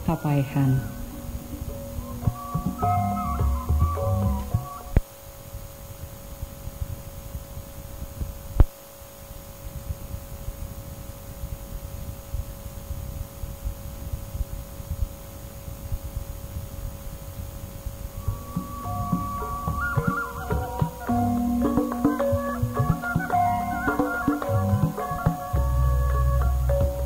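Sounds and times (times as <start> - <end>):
faint held tones: 0.0 - 5.0, 18.2 - 27.0
low fluttering cassette rumble: 0.0 - 8.6.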